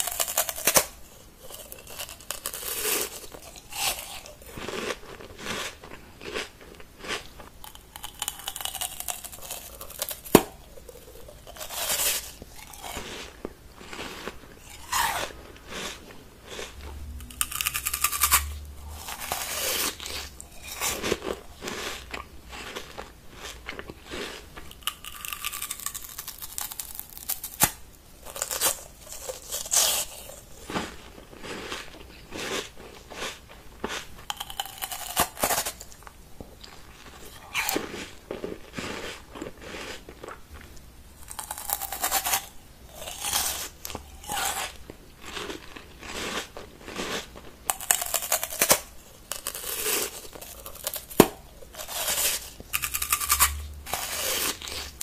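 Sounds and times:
crunching bites and chewing: 0.0s - 55.0s
sharp crack: 10.2s - 10.6s.

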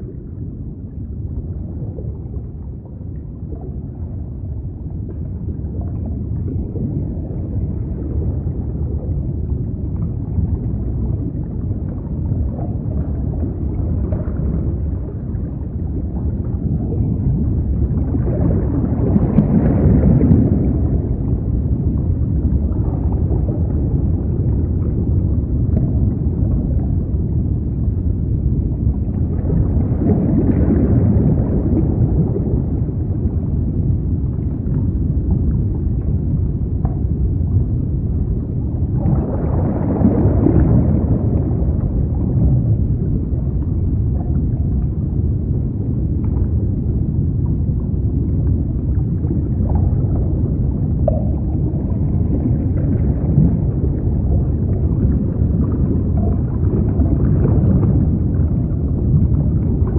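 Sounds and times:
underwater rumble and gurgling: 0.0s - 59.9s.

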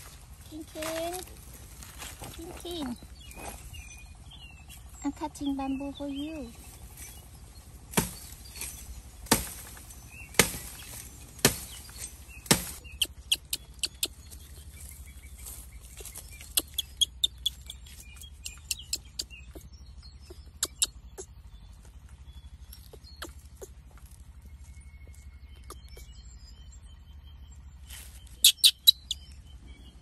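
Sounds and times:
bamboo being chopped: 7.9s - 14.1s.

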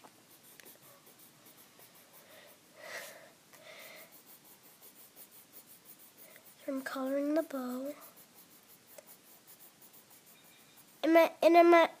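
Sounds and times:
pencil scratching on paper: 0.0s - 12.0s
soft breath: 2.1s - 4.4s.

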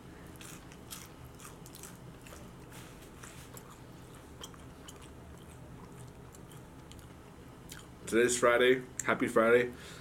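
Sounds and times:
person chewing crunchy food: 0.2s - 7.9s.

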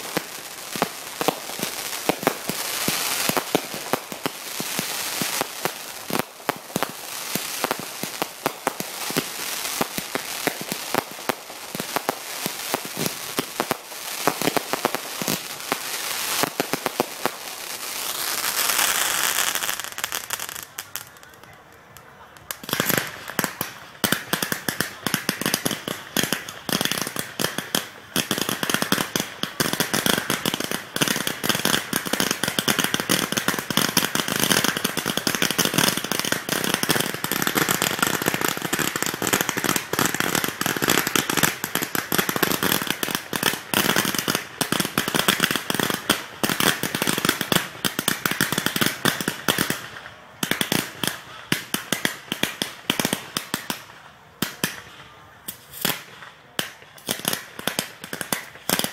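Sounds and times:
fireworks bangs and crackling: 0.0s - 58.9s.

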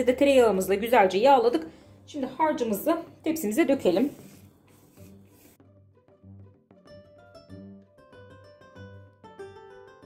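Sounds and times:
string music with bass: 5.0s - 10.0s.

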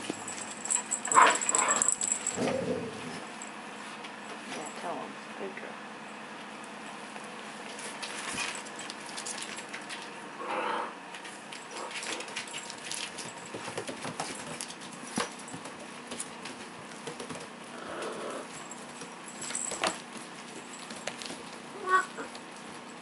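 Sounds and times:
small paws and toys clicking: 0.0s - 2.6s, 7.7s - 10.1s, 11.1s - 23.0s.

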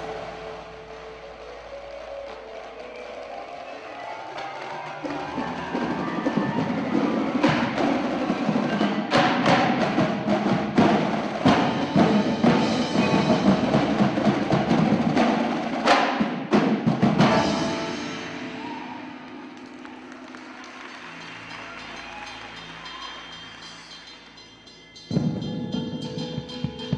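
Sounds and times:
mallet keyboards: 0.0s - 18.9s, 21.0s - 26.9s
tenor drums: 0.0s - 26.9s
snare drums: 4.4s - 23.8s.

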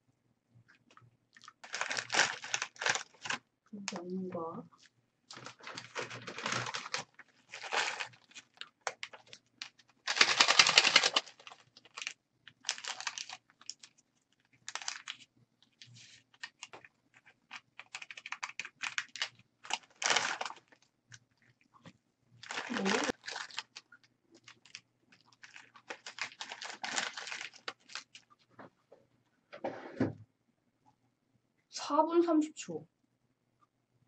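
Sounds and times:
paper packets tearing and rustling: 1.5s - 3.4s, 5.3s - 20.8s, 22.4s - 28.2s.

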